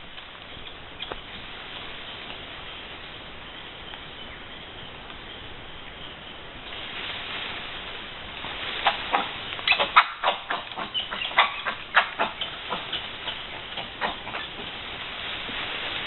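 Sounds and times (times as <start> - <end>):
monkeys giving sharp calls: 8.8 - 14.8.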